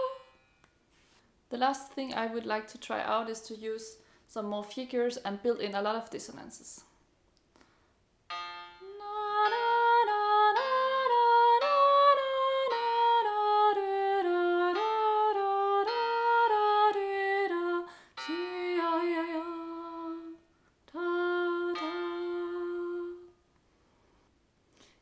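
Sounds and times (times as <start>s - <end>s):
woman singing wordless melody: 0.0s - 0.5s, 8.8s - 23.4s.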